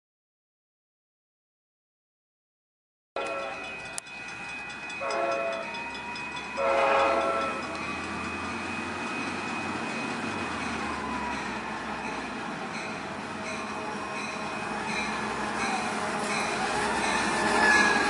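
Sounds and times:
locomotive horn blasts: 3.2 - 3.8, 5.0 - 5.8, 6.5 - 7.8
crossing bell ringing: 3.2 - 18.0.

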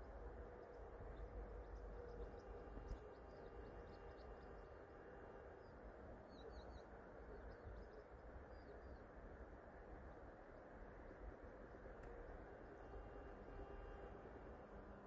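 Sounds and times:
open air background noise: 0.0 - 15.0.

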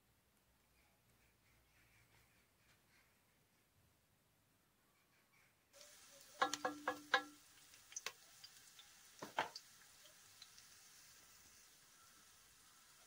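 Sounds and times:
onions sizzling in oil: 5.8 - 13.0
metal spoon knocking on pot: 6.4 - 7.4.

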